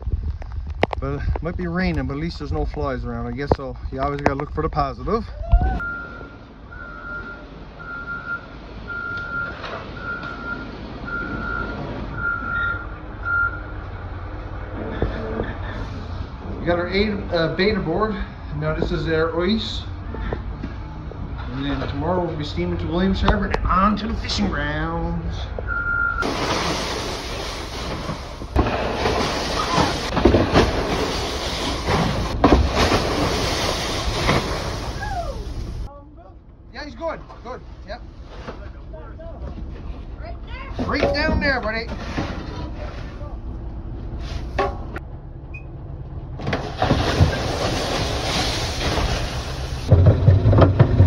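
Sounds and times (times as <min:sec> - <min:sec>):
backup alarm beeping: 0:05.8 - 0:13.9, 0:25.6 - 0:26.3
ice rushing down a chute: 0:26.2 - 0:35.5, 0:46.6 - 0:51.0.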